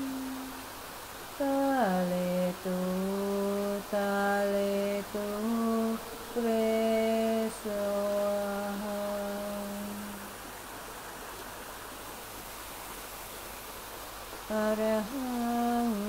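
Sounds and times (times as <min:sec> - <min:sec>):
woman singing a chant melody: 0:00.0 - 0:00.6, 0:01.4 - 0:10.4, 0:14.4 - 0:16.0.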